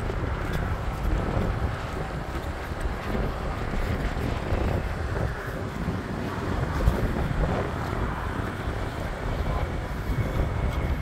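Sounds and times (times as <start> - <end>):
wind noise on microphone: 0.0 - 11.0.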